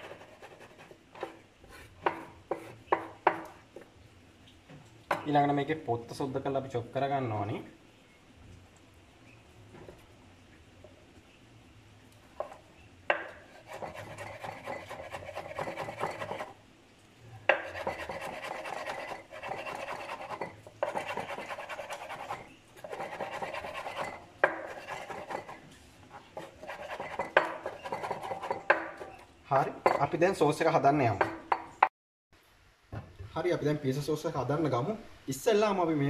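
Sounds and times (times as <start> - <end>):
knife chopping on wooden board: 2.0 - 3.6, 12.4 - 16.5, 17.5 - 25.6, 26.4 - 29.1.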